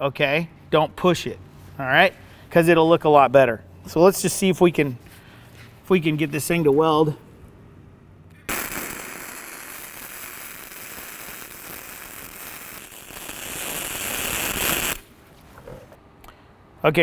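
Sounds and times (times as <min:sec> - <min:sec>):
welding arc: 0:08.5 - 0:15.2.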